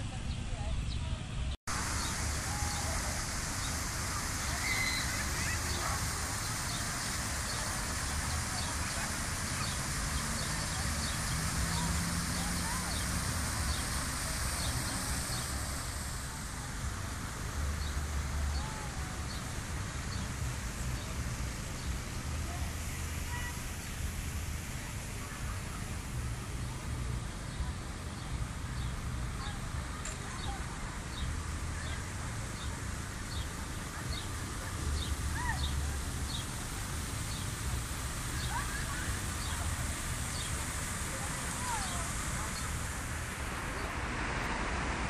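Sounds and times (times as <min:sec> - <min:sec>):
distant traffic rumble: 0:00.0 - 0:45.0
bird arched call: 0:04.4 - 0:06.8
faint short bird chirps: 0:04.6 - 0:05.6.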